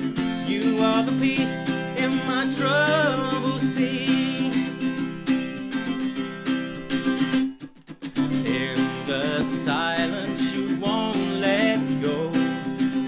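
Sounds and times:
man singing: 0.0 - 5.0, 8.3 - 13.0
acoustic guitar strumming: 0.0 - 13.0.

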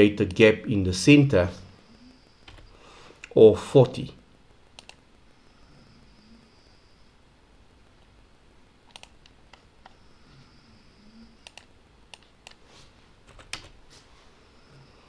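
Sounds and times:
mouse and keyboard clicks: 4.7 - 5.0, 8.9 - 10.0, 11.4 - 12.6.

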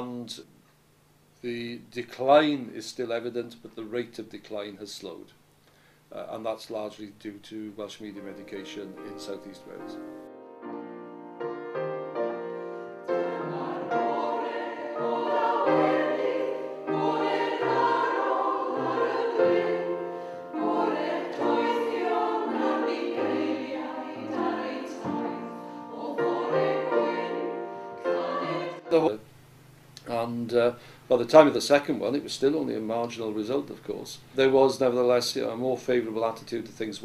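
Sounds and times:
choir singing in harmony: 11.4 - 29.1.

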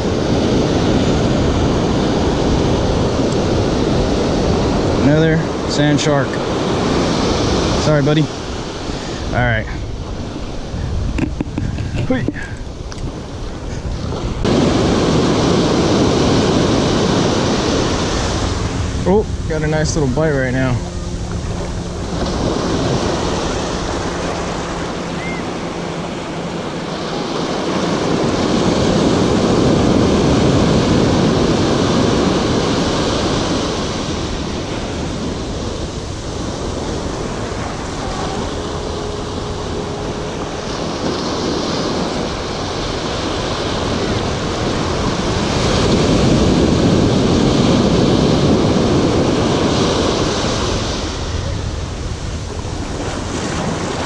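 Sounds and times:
ocean surf breaking: 0.0 - 54.0.

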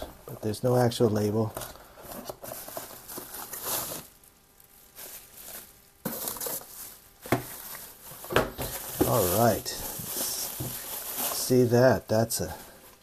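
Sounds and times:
rustling of plastic wrap: 0.6 - 13.0.

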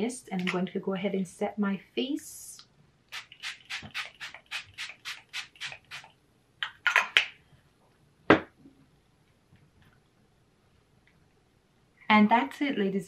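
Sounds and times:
spray bottle hissing sprays: 3.1 - 6.1.

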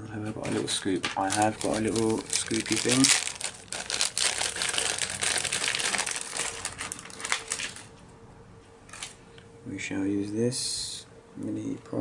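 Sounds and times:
plastic bag crinkling: 0.5 - 7.9.

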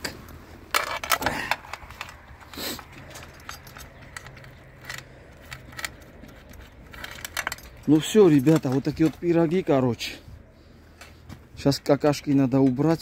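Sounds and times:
metallic clicks and jingles: 0.7 - 9.8.

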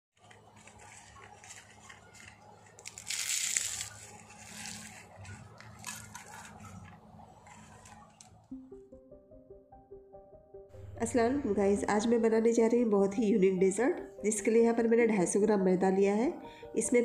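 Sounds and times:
pastry crushed and crackling: 0.2 - 8.5.

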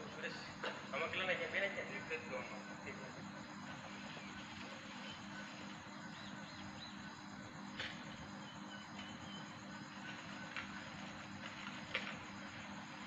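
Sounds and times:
steady low hum: 0.0 - 13.0
faint bird chirps: 1.9 - 11.3.

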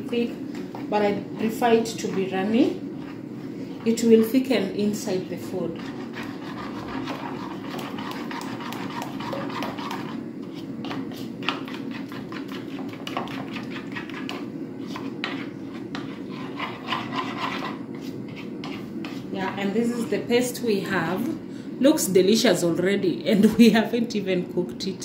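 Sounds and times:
steady low hum: 0.0 - 25.0
spoon scraping in a ceramic bowl: 5.7 - 19.3.

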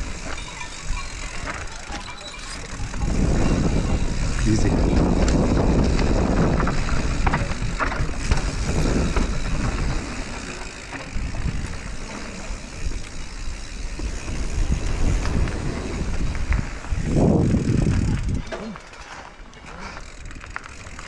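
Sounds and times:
bike rattling and knocking: 0.0 - 21.0
tyres rolling over dirt: 0.0 - 21.0
wind rumbling on microphone: 2.6 - 18.6.

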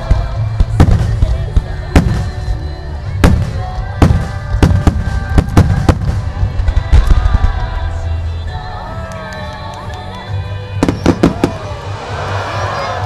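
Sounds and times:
fireworks bursting bangs: 0.0 - 7.8, 10.8 - 11.9
faint music: 0.0 - 13.0.

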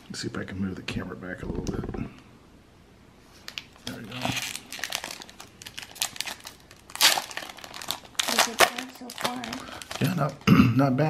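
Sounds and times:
foil wrapper crinkling and tearing: 3.5 - 10.4.

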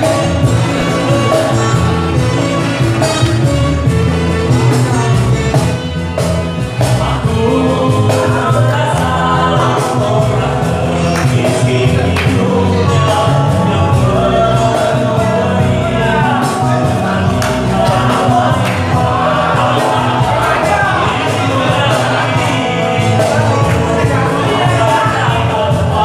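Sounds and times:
cajon drumming: 0.0 - 26.0
guitars: 0.0 - 26.0
man singing into a microphone: 6.8 - 26.0.

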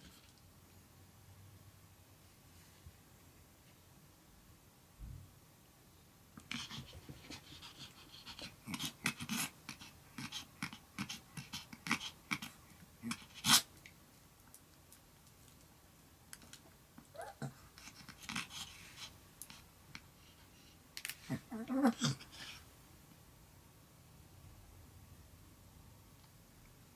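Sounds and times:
dog panting: 6.4 - 13.7, 17.2 - 20.8.

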